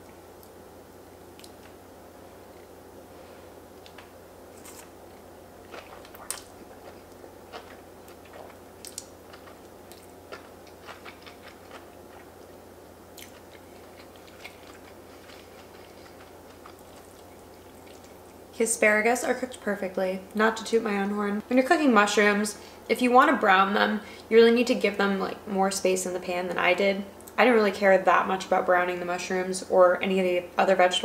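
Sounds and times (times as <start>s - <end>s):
faint steady hum: 0.0s - 31.0s
wet mouth clicks and smacks: 1.4s - 1.8s, 5.8s - 7.2s, 8.2s - 10.1s
pasta slurping and chewing: 5.7s - 12.5s, 13.2s - 18.3s.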